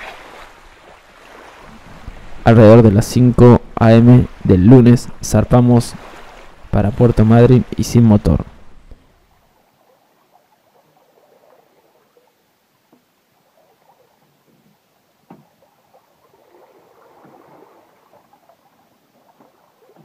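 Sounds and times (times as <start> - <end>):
water lapping against hull: 0.0 - 20.0.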